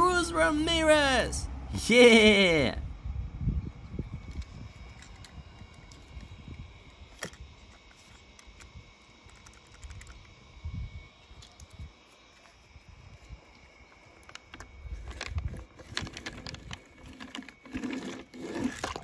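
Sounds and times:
toy car clicking and tapping: 8.3 - 10.3.

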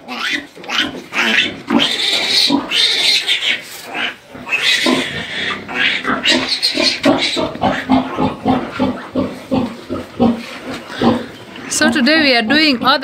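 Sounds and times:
piglet squealing: 0.0 - 9.2.

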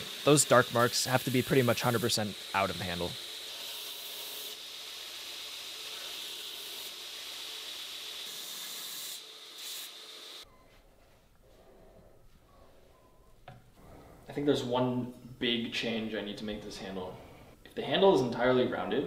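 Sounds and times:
belt grinder sanding: 0.0 - 10.4.

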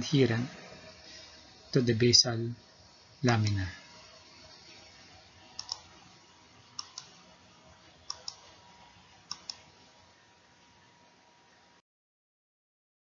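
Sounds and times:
faint steady hiss: 0.0 - 11.8
computer button clicks: 9.3 - 9.6.

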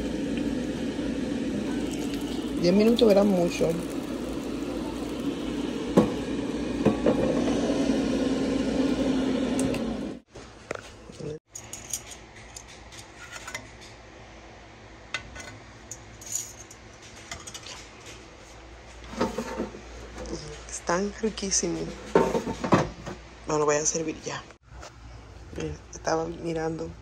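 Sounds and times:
air fryer fan hum: 0.0 - 10.4.

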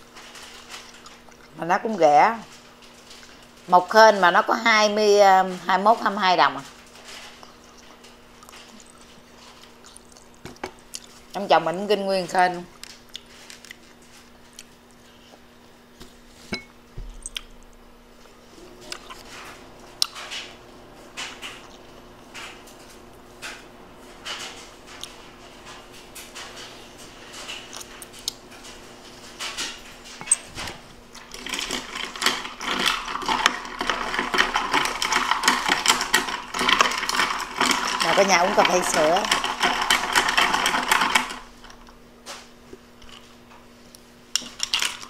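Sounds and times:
wet chewing and mouth sounds: 0.7 - 1.6, 7.3 - 11.4, 12.7 - 15.5, 17.1 - 17.8.

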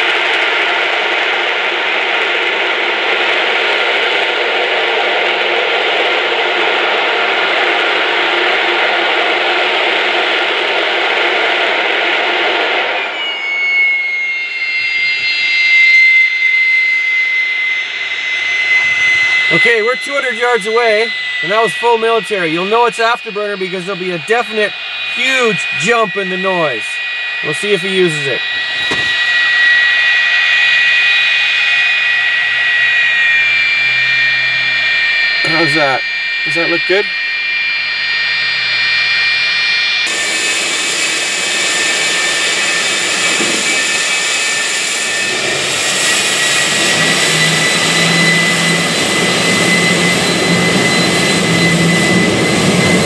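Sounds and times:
high jet engine whine: 0.0 - 53.0
jet engine roar: 0.0 - 53.0.

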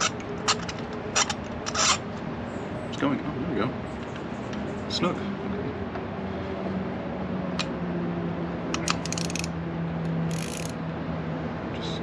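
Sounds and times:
ratchet clicking: 8.7 - 9.6, 10.2 - 10.8.

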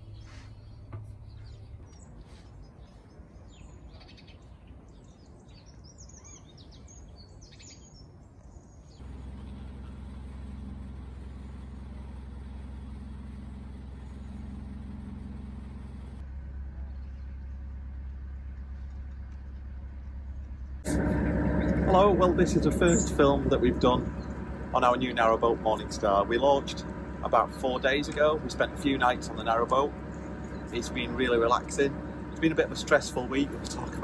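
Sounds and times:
birds chirping: 0.0 - 16.2, 20.9 - 34.0
boat engine running: 9.0 - 34.0.

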